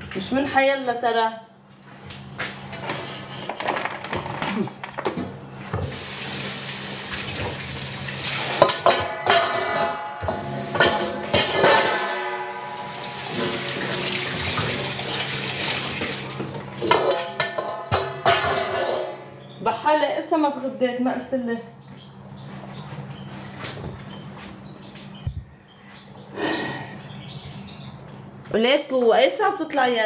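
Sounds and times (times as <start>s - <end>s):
dishes clinking: 8.6s - 15.0s, 16.6s - 19.6s.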